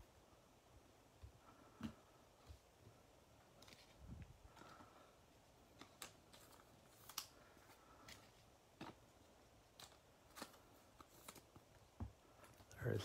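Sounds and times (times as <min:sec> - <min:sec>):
cards clicking and rustling: 0:03.5 - 0:04.9, 0:05.6 - 0:11.8.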